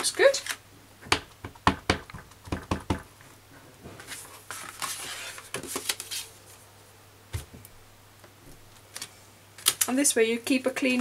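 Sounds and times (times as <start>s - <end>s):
paper rustling: 4.0s - 6.6s.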